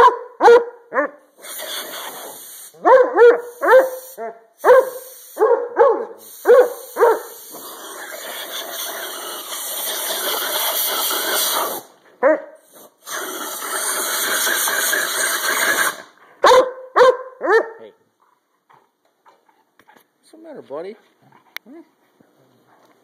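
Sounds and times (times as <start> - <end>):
dog barking: 0.0 - 1.2, 2.8 - 7.4, 12.2 - 12.6, 16.4 - 18.0
compressed air hissing: 1.3 - 5.5, 6.1 - 12.0, 12.6 - 16.2.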